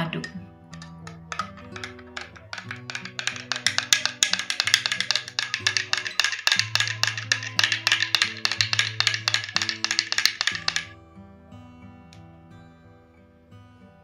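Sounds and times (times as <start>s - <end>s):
spoon clinking against glass: 0.0s - 10.9s
background music with low notes: 0.0s - 14.0s.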